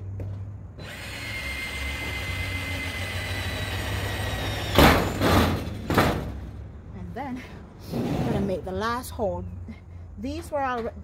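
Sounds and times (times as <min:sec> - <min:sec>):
drill boring into sheet metal: 0:00.8 - 0:05.6.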